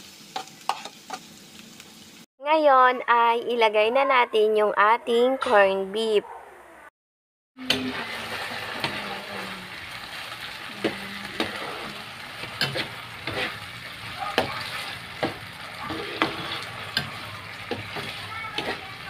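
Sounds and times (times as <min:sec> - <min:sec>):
food sizzling in hot oil: 0:00.0 - 0:02.3, 0:07.6 - 0:19.0
spatula scraping and knocking pan: 0:00.4 - 0:01.2, 0:07.7 - 0:09.4, 0:10.8 - 0:19.0.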